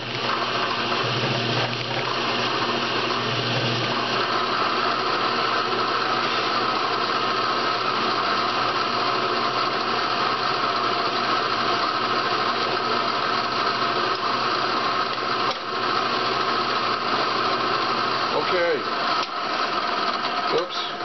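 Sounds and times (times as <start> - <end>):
electric drill cutting lead: 0.0 - 21.0.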